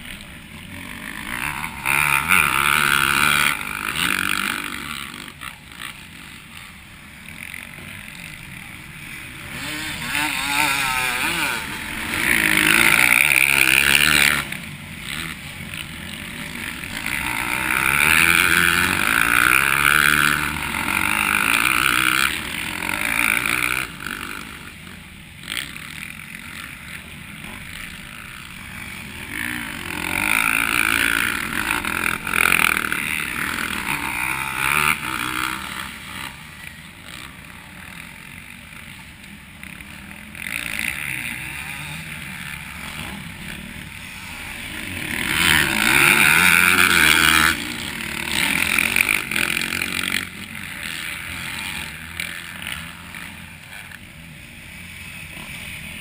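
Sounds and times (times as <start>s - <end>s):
motocross bikes passing: 0.0s - 56.0s.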